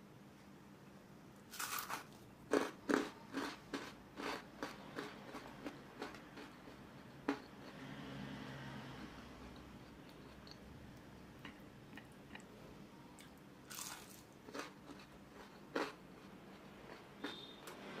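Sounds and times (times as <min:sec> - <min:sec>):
crunchy fritter bite and chewing: 0:01.5 - 0:07.8, 0:13.3 - 0:17.5.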